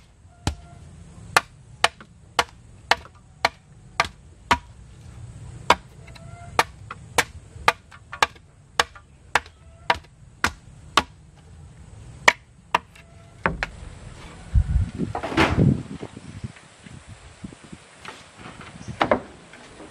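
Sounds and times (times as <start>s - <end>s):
machete chopping wood: 0.0s - 0.7s, 1.3s - 4.8s, 5.7s - 11.2s, 12.2s - 13.7s.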